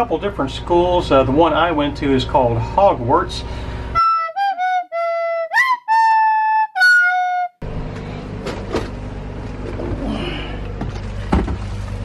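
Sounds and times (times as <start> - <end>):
steady low hum: 0.0 - 4.0, 7.6 - 12.0
flute-like tune: 4.0 - 7.6.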